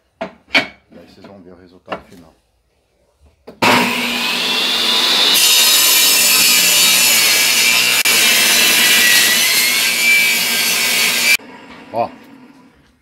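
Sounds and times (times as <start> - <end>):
table saw cutting wood: 3.6 - 12.6.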